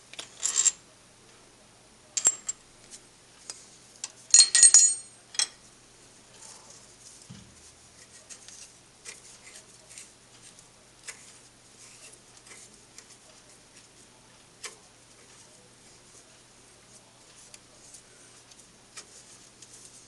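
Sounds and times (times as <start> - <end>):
allen key clinking on metal: 4.3 - 5.6.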